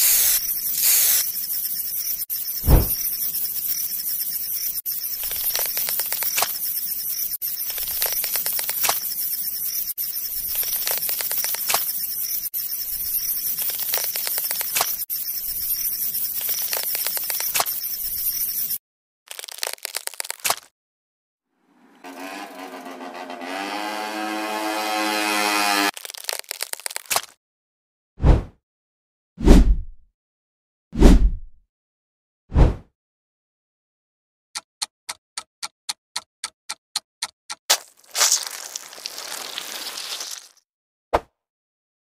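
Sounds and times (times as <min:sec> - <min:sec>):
power tool motor whirring: 0:00.0 - 0:03.2, 0:21.8 - 0:25.9
crackling scrape with clicks: 0:00.0 - 0:20.7, 0:25.7 - 0:27.4.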